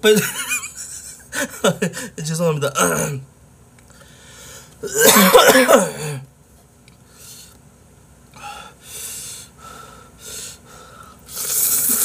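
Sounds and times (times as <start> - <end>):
noisy breaths: 3.9 - 4.8, 7.0 - 7.6, 8.3 - 12.0
man coughing: 4.8 - 6.3.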